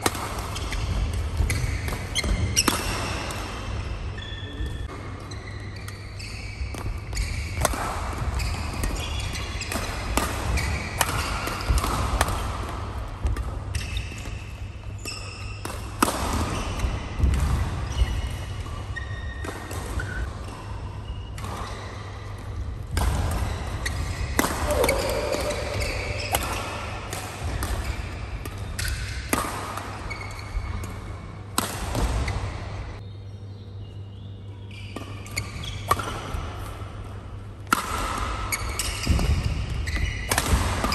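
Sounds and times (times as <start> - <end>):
rackets hitting shuttlecock: 0.0 - 4.1, 4.8 - 32.8, 34.9 - 40.9
shoes squeaking on court: 0.4 - 11.9, 13.6 - 15.7, 16.3 - 29.4, 30.0 - 31.0, 38.2 - 40.9.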